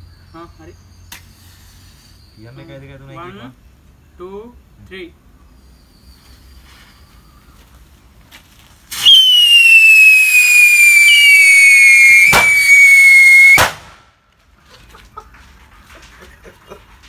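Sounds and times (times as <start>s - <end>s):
whistling firework rockets: 8.9s - 14.0s
sharp cracks: 9.0s - 14.1s.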